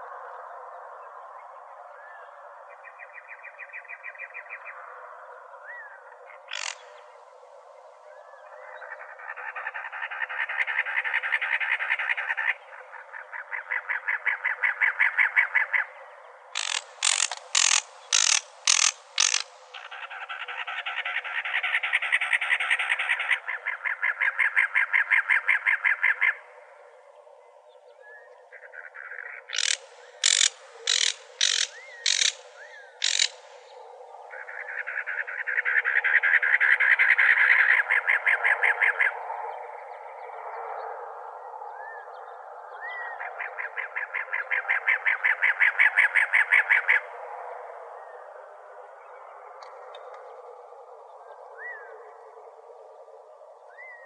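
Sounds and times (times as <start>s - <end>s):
wren harsh chugging song: 6.5s - 6.8s, 16.6s - 19.9s, 29.5s - 33.5s
sharp bird notes: 16.6s - 19.9s, 29.5s - 33.5s.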